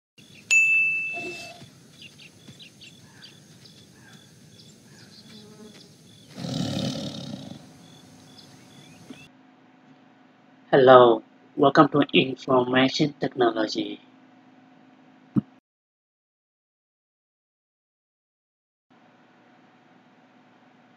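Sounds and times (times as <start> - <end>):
sharp ringing ding: 0.5 - 1.6
tiger roaring: 6.3 - 8.0.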